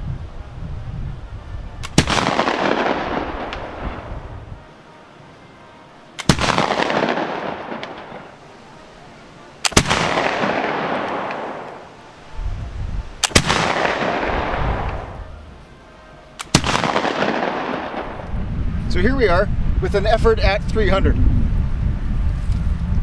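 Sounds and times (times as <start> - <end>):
rifle shots: 1.8 - 4.1, 6.2 - 8.4, 9.6 - 11.9, 13.2 - 15.2, 16.4 - 18.2
rolling echo of gunshots: 1.8 - 4.1, 6.2 - 8.4, 9.6 - 11.9, 13.2 - 15.2, 16.4 - 18.2.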